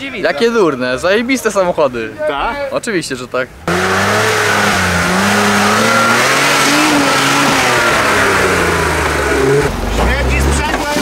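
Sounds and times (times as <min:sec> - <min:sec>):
rally car engine revving: 0:03.6 - 0:11.0.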